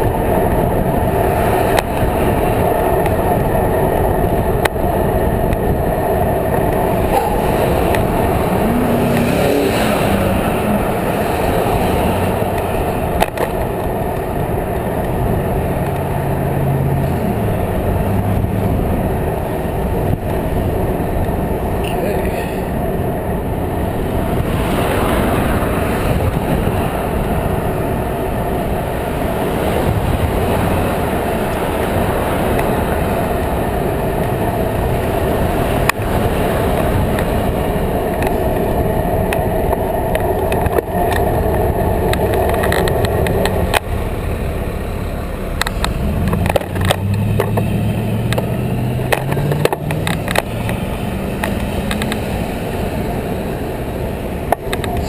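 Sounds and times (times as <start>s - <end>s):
traffic engines and tyres: 0.0s - 55.0s
vehicle engine accelerating: 0.0s - 55.0s
wind rushing over microphone: 0.0s - 55.0s
bike clicks and knocks: 12.4s - 14.3s, 39.3s - 43.9s.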